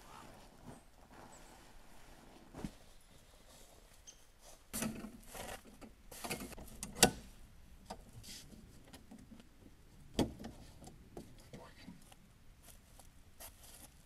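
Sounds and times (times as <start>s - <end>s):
camping gear rustling and knocking: 0.0s - 7.2s.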